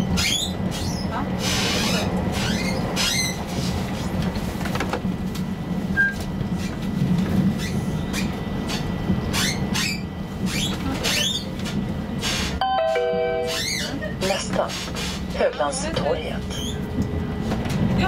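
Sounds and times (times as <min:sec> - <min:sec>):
tram wheels rumbling on track: 0:00.0 - 0:18.0
short squeaks: 0:13.5 - 0:14.0.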